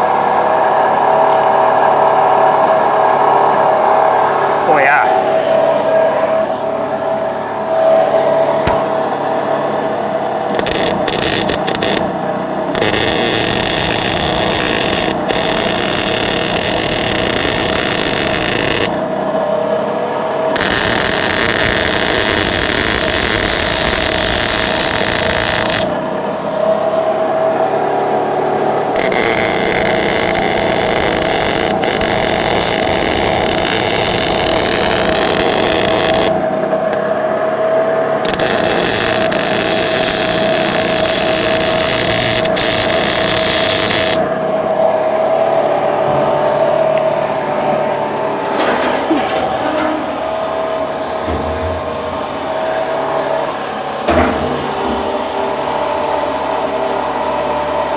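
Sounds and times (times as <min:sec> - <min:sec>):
steady hum: 0:00.0 - 0:57.9
welding arc crackling and sizzling: 0:10.5 - 0:12.1, 0:12.8 - 0:19.0, 0:20.6 - 0:25.9, 0:28.9 - 0:36.4, 0:38.3 - 0:44.2.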